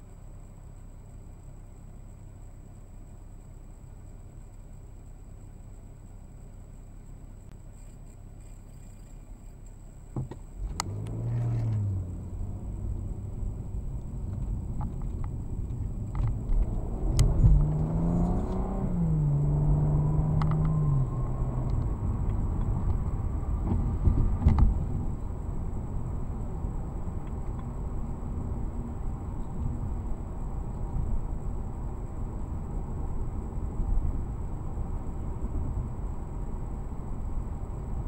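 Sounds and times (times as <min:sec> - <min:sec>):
car engine accelerating: 0:10.1 - 0:38.0.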